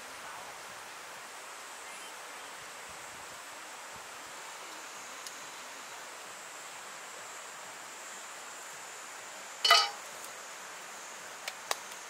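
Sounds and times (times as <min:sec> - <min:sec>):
steady outdoor hiss: 0:00.0 - 0:12.0
metal tongs clattering on grill: 0:09.7 - 0:10.0.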